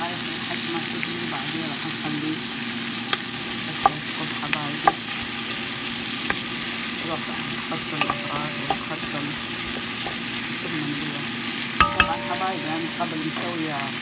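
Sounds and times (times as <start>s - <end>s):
vegetables sizzling in oil: 0.0s - 14.0s
wooden spoon scraping a pot: 4.8s - 10.6s.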